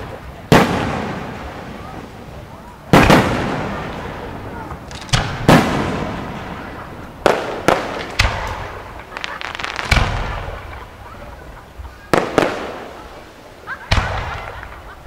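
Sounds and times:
firework crackle: 0:00.0 - 0:15.0
firework shells booming: 0:00.0 - 0:15.0.

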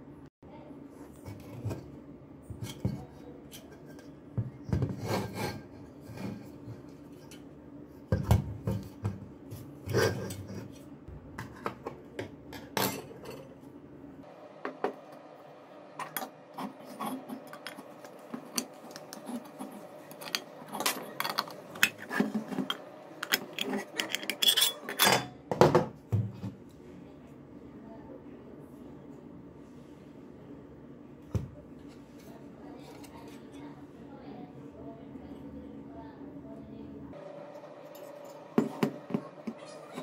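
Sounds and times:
metal clinks and scrapes: 0:23.5 - 0:25.2.

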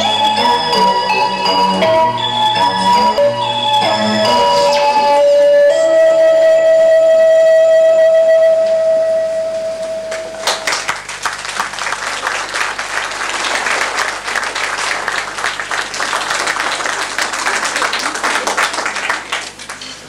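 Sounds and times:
held musical note: 0:00.0 - 0:10.8
audience applauding: 0:10.1 - 0:20.0.

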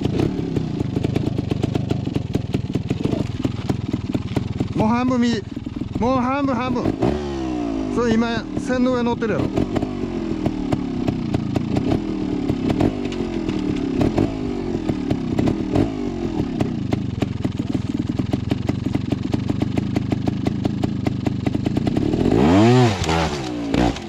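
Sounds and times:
rapid engine ticking: 0:00.0 - 0:07.2, 0:07.8 - 0:22.4
motorcycle engine revving and idling: 0:00.0 - 0:24.0.

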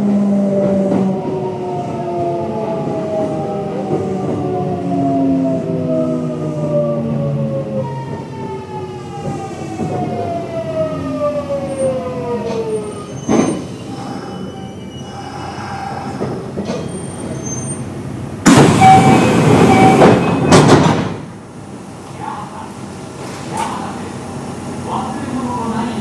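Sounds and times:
train inverter whining: 0:00.0 - 0:26.0
train running rumble: 0:12.2 - 0:26.0.

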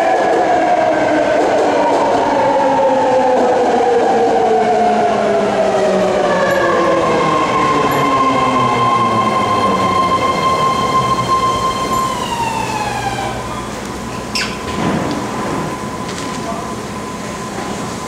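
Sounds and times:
steady high tone: 0:05.9 - 0:13.8
train whine falling in pitch: 0:06.0 - 0:14.2.

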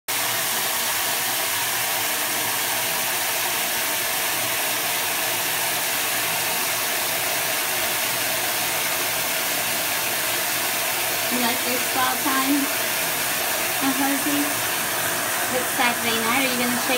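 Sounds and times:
water rushing into bathtub: 0:00.1 - 0:16.9.

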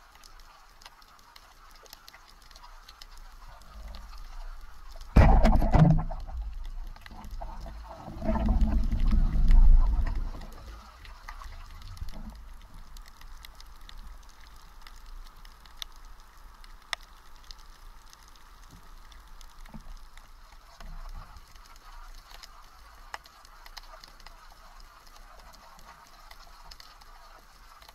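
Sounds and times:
faint steady hiss: 0:00.0 - 0:27.9
sharp clicks and crackles: 0:00.0 - 0:27.9
muffled underwater rush: 0:02.7 - 0:14.9.

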